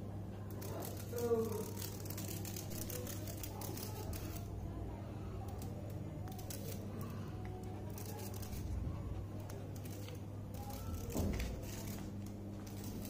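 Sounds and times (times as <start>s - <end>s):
steady low hum: 0.0s - 13.0s
dog claws clicking on floor: 9.4s - 13.0s.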